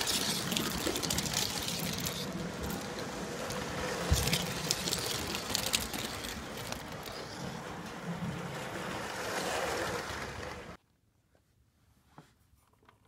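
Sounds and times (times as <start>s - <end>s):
model train running on track: 0.0s - 10.8s.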